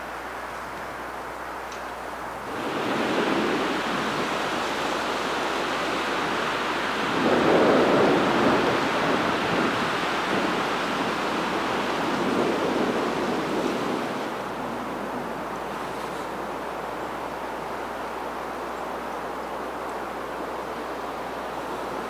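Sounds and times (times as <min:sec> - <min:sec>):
wind rushing: 0:02.5 - 0:15.5.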